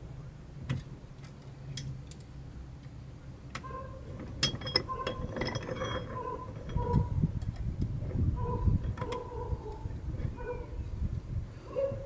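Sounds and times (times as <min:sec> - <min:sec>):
low steady hum: 0:00.0 - 0:12.0
small metal parts clicking: 0:03.5 - 0:07.9
short metallic rings: 0:03.7 - 0:07.2.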